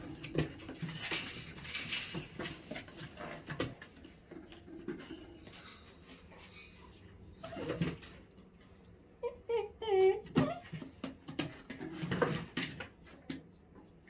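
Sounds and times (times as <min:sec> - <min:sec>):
puppies scuffling and knocking: 0:00.0 - 0:08.3, 0:10.1 - 0:13.6.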